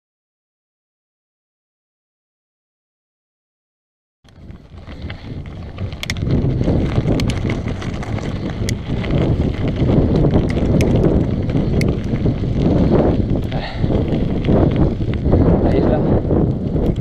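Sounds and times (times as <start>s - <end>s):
bike tyres rolling over gravel: 4.3s - 17.0s
stones and bike chain rattling: 4.3s - 17.0s
wind rushing over microphone: 4.3s - 17.0s.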